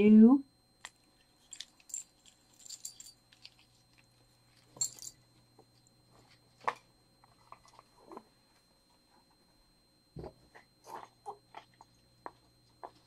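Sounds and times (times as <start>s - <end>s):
metal jewelry clinking and rattling: 1.4s - 4.0s, 4.7s - 5.2s.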